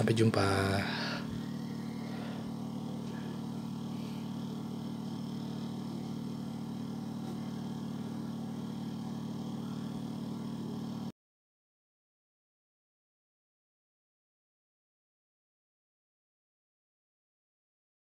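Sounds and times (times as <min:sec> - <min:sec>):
low mechanical hum: 0:00.0 - 0:11.1.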